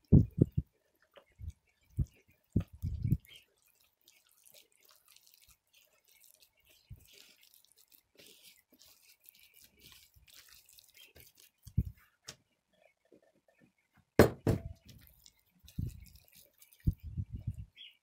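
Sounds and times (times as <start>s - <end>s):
spatula scraping dough in bowl: 1.3s - 12.2s
dull thump: 14.2s - 14.8s
loud short knocks: 14.2s - 14.8s.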